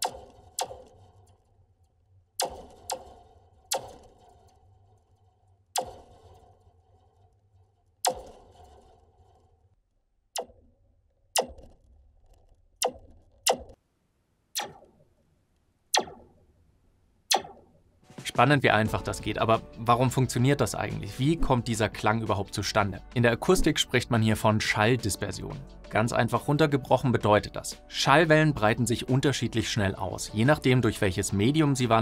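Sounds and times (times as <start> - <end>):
struck metal spring pew: 0.0 - 1.5, 2.4 - 7.4, 8.0 - 9.6, 11.3 - 11.9, 14.6 - 15.0, 15.9 - 16.4, 17.3 - 17.7.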